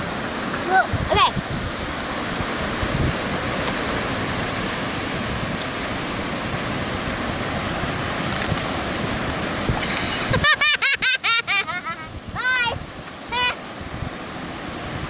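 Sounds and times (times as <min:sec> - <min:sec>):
wind buffeting microphone: 0:00.0 - 0:10.8, 0:11.7 - 0:15.0
ocean surf breaking: 0:00.0 - 0:15.0
high-pitched voice: 0:12.4 - 0:13.6.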